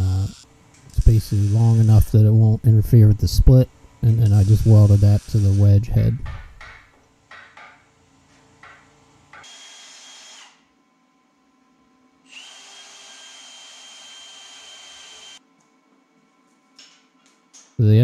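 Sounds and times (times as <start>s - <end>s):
power tool whining: 0.0s - 2.1s, 4.1s - 5.8s, 12.3s - 15.4s.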